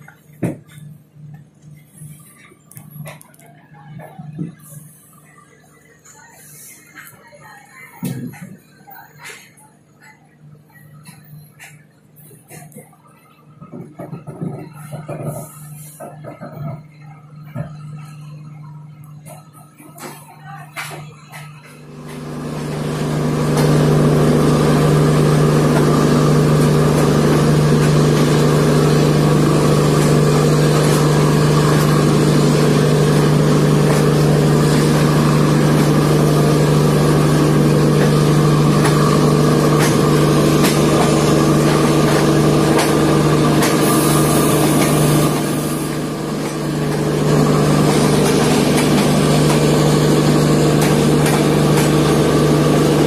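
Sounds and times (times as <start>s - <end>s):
train wheels rolling on rails: 19.9s - 53.0s.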